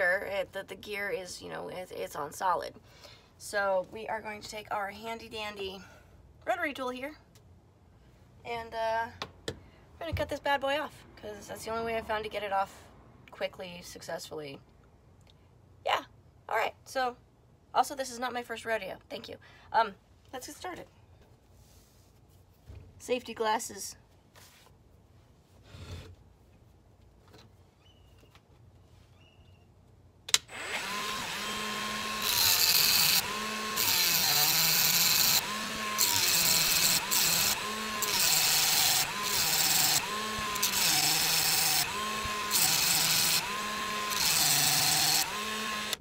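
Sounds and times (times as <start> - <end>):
rotary tool motor whine: 30.5 - 46.0.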